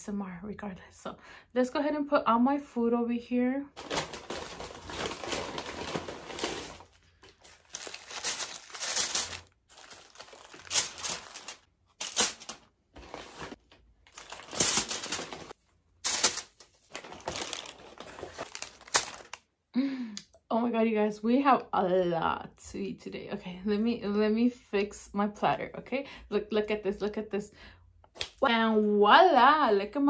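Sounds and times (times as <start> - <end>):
aluminium foil crinkling: 3.8 - 19.4
paper bags crinkling: 3.8 - 19.4.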